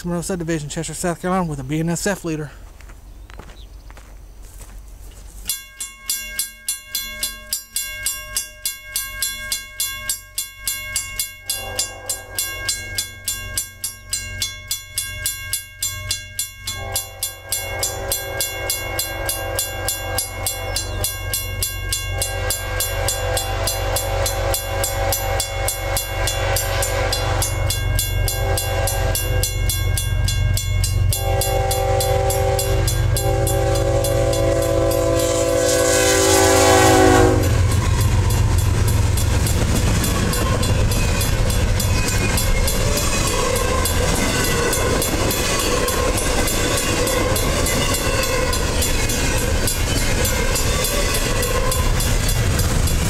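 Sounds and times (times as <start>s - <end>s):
train rumbling: 0.0s - 5.5s, 6.4s - 53.0s
crossing bell ringing: 5.4s - 53.0s
train horn blasts: 11.5s - 12.8s, 16.7s - 40.8s.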